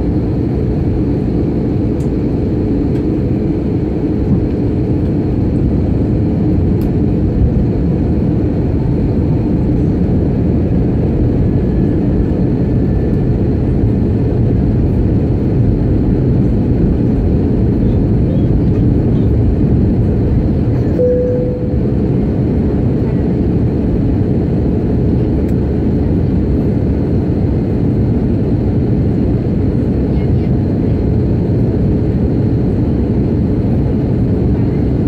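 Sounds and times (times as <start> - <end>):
airliner cabin engine rumble: 0.0 - 35.0
short tone: 21.0 - 22.2.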